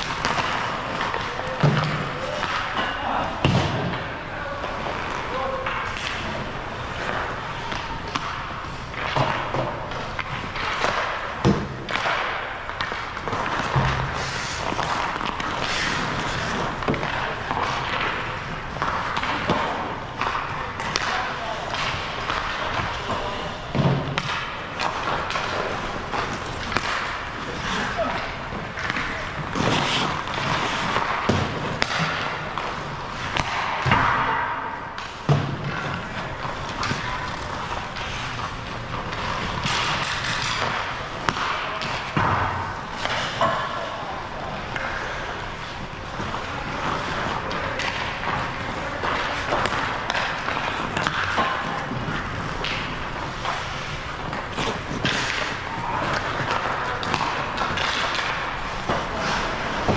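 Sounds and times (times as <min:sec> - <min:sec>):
skate blades scraping ice: 0:00.0 - 0:02.8, 0:04.6 - 0:33.8, 0:35.1 - 0:59.9
pucks and sticks knocking: 0:00.0 - 0:59.9.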